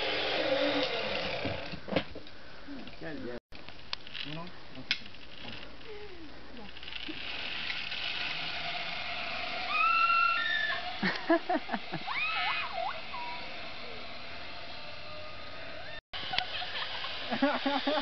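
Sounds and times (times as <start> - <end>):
zip-line trolley whirring on cable: 0.0 - 1.8, 6.6 - 18.0
person whooping and yelling: 9.7 - 10.8, 12.0 - 13.5.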